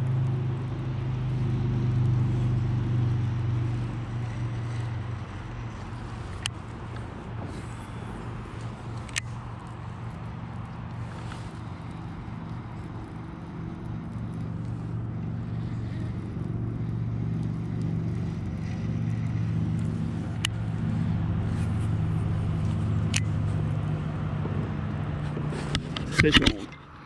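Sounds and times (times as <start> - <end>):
low engine hum: 0.0 - 27.0.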